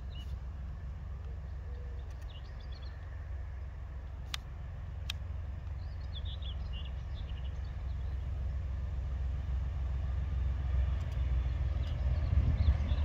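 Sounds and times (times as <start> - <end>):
bird chirping: 0.0 - 0.4, 1.2 - 3.2, 5.6 - 8.4
distant diesel locomotive rumble: 0.0 - 13.0.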